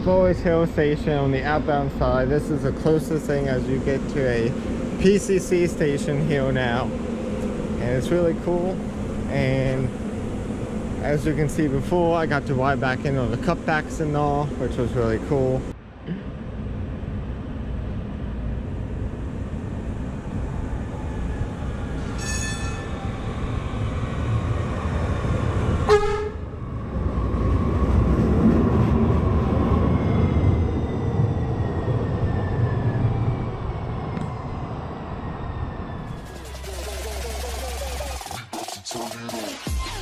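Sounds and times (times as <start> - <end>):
falling whine of train slowing: 0.0 - 38.3
rumble of trains running: 0.0 - 38.4
short train toots: 22.1 - 23.0, 25.9 - 26.4.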